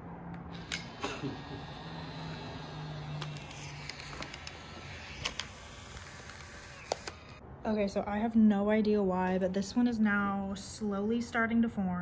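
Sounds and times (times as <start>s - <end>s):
instant camera motor whir: 0.5s - 7.4s.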